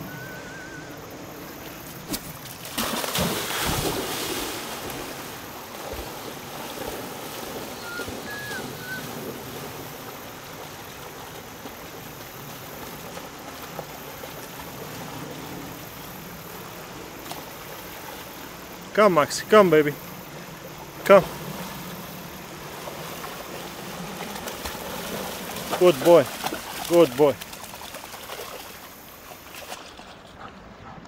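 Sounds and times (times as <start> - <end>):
creek rushing: 0.0 - 31.0
dog splashing in water: 2.0 - 15.2, 22.6 - 30.4.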